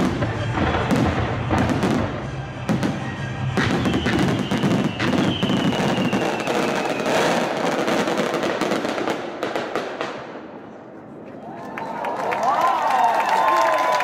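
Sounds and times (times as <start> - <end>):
fireworks bursting and crackling: 0.0 - 10.7
faint falling whistle: 3.6 - 7.2.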